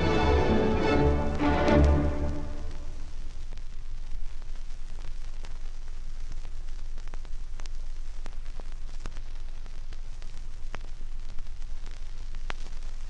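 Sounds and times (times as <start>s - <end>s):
vinyl record hiss: 0.0s - 13.0s
vinyl clicks and pops: 1.3s - 13.0s.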